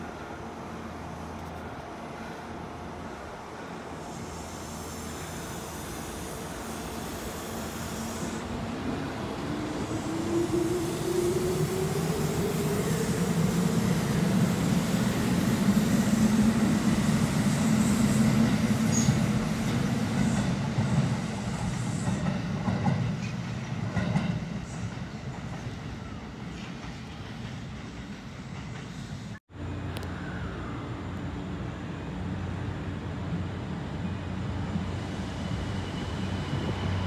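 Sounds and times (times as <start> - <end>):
train wheels clattering on rails: 14.5 - 25.8, 26.4 - 29.1.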